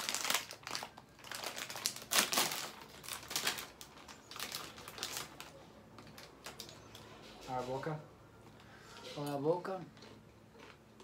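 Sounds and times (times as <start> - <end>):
chip bag crinkling: 0.0 - 7.0.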